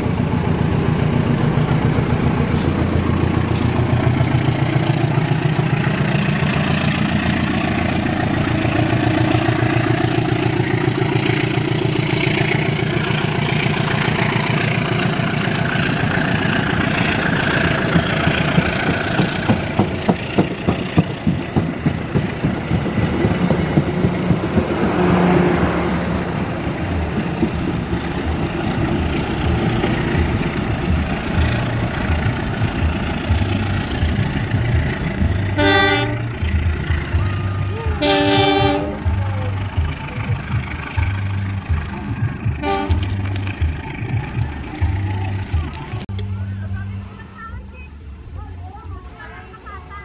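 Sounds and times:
train wheels clattering over rail joints: 0:00.0 - 0:25.7, 0:26.3 - 0:37.4
train horn toot: 0:35.6 - 0:36.3, 0:38.0 - 0:39.2, 0:42.6 - 0:43.2.

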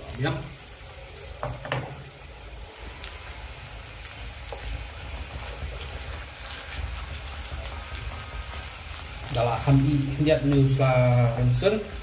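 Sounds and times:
oil crackles and pops: 0:00.0 - 0:12.0
paste sizzling in hot oil: 0:00.0 - 0:12.0.

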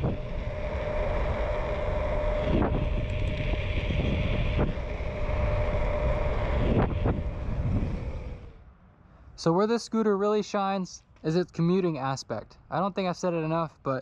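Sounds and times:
wind buffeting microphone: 0:00.0 - 0:08.6
electric motor whine: 0:00.0 - 0:08.7
scooter road noise: 0:00.0 - 0:08.7.

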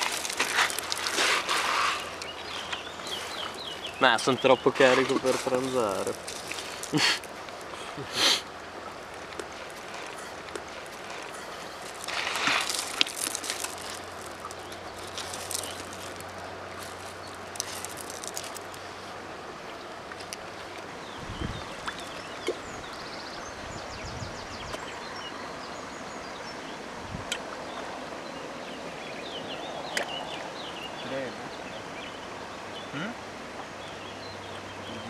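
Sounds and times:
close rustles and clicks: 0:00.0 - 0:03.8, 0:04.7 - 0:07.9, 0:09.6 - 0:18.9
river running over gravel: 0:00.0 - 0:35.0.

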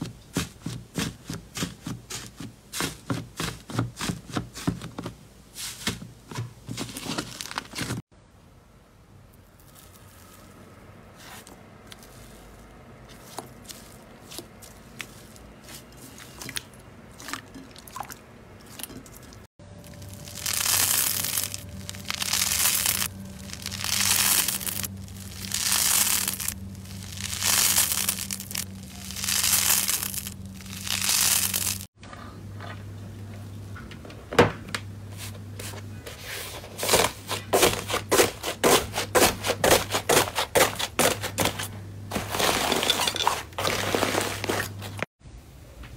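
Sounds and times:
crunchy slime crackles: 0:09.5 - 0:10.6, 0:19.8 - 0:31.9
slime crackling: 0:19.8 - 0:31.9
slime tearing and crackling: 0:19.8 - 0:31.9.

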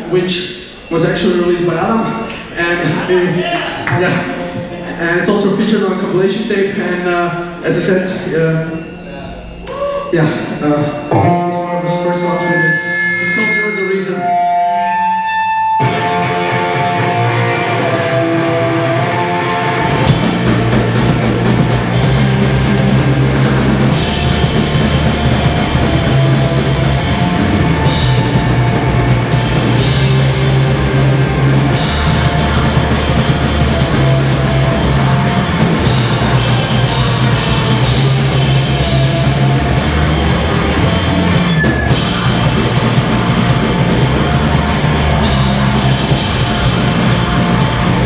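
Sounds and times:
loud distorted rock band: 0:00.0 - 0:48.0
sustained guitar notes: 0:03.8 - 0:05.3, 0:08.6 - 0:48.0
bass guitar: 0:08.7 - 0:48.0
drums: 0:14.3 - 0:48.0.

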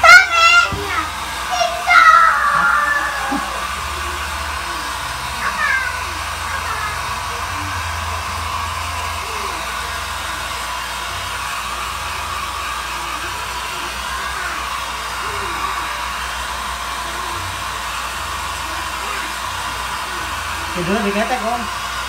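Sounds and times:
hair dryer blowing: 0:00.0 - 0:22.0.

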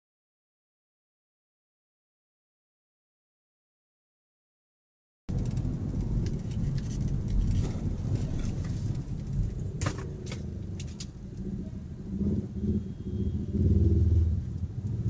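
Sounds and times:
car engine and road rumble: 0:05.3 - 0:15.0.

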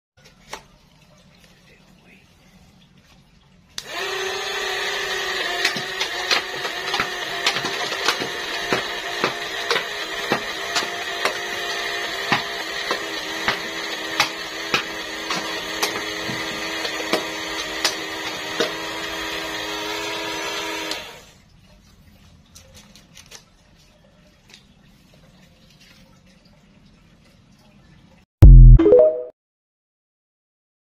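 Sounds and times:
small electric motor whining: 0:03.8 - 0:21.2.

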